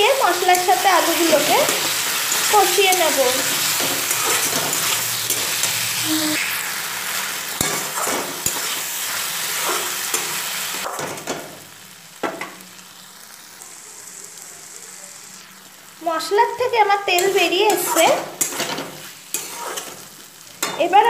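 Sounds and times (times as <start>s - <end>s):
potatoes sizzling in oil: 0.0s - 21.0s
metal spatula scraping pan: 0.4s - 6.0s, 7.6s - 8.8s, 17.1s - 20.0s.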